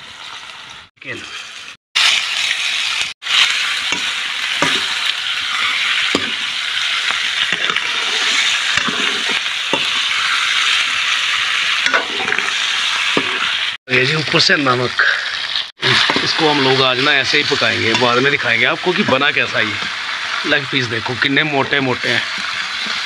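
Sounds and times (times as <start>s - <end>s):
chicken sizzling in hot oil: 0.0s - 23.0s
metal ladle scraping a pan: 3.3s - 13.8s, 15.8s - 18.4s.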